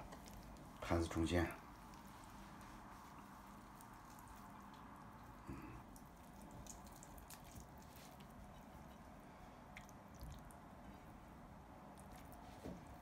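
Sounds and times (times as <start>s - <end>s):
soft wet clicks of food: 0.0s - 0.7s, 3.8s - 9.1s, 9.7s - 10.7s, 11.9s - 12.4s.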